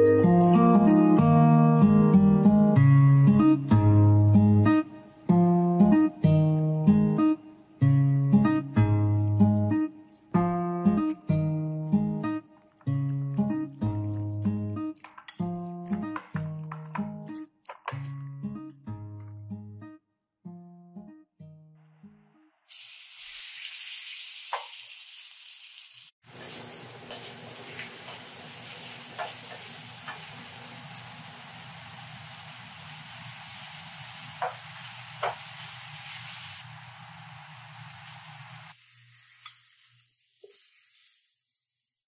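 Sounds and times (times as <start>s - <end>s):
meat sizzling in a skillet: 22.7s - 42.0s.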